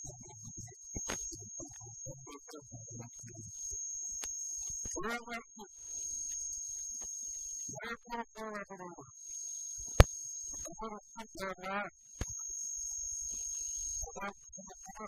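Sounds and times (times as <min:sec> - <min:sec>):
people talking: 0:00.0 - 0:03.5, 0:04.9 - 0:05.7, 0:07.7 - 0:09.1, 0:10.6 - 0:11.9, 0:13.3 - 0:15.0
high-pitched whine: 0:00.0 - 0:15.0
sharp click: 0:01.0 - 0:01.4, 0:09.8 - 0:10.7, 0:12.2 - 0:12.4.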